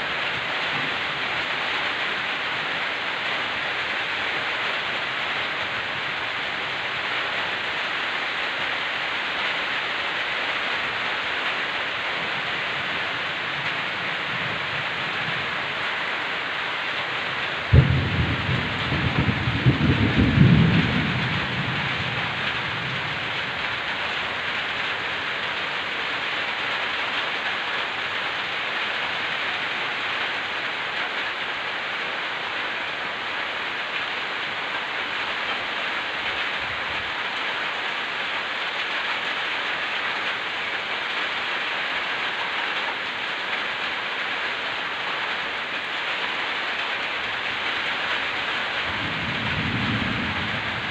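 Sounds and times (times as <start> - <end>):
heavy rain hissing: 0.0 - 50.9
thunderclap rumbling: 17.6 - 23.9, 48.8 - 50.9.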